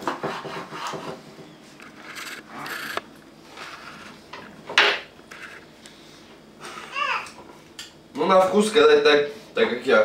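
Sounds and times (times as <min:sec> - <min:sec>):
knife scraping cutting board: 0:00.0 - 0:01.2.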